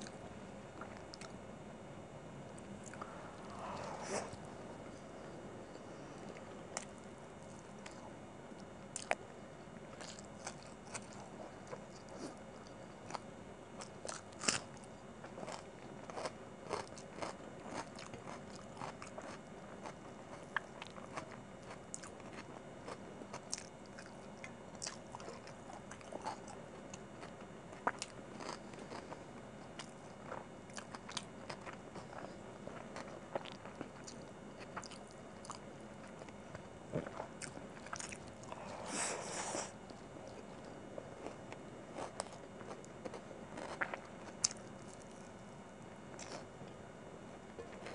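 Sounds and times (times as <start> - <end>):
chewing and biting food: 9.9 - 38.6, 39.9 - 45.4, 46.2 - 46.5.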